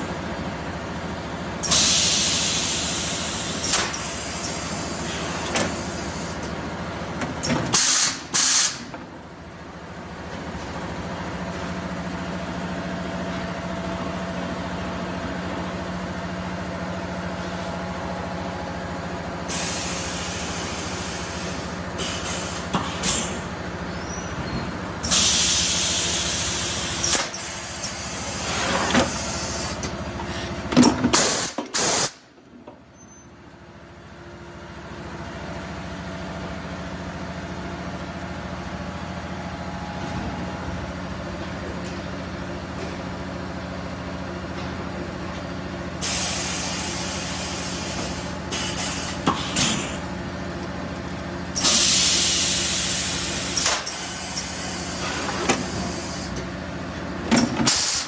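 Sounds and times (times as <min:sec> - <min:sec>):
compressed air hiss bursts: 0:01.6 - 0:05.0, 0:07.8 - 0:08.8, 0:19.5 - 0:23.4, 0:25.0 - 0:29.8, 0:31.1 - 0:32.2, 0:46.0 - 0:50.0, 0:51.6 - 0:56.3, 0:57.7 - 0:58.0.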